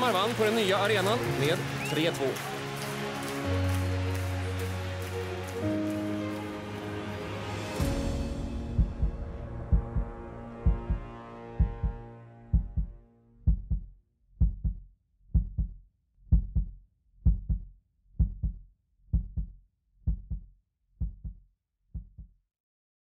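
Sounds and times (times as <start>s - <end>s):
held music chord: 2.6s - 13.4s
heartbeat thumps: 8.6s - 21.4s, 22.0s - 22.4s.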